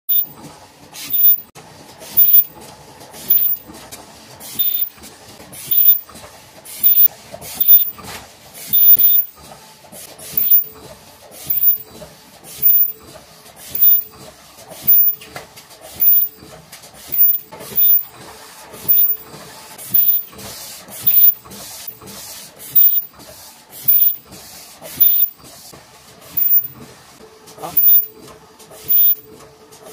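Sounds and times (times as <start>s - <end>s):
machine mechanical clatter: 0.1s - 9.7s, 10.3s - 22.2s.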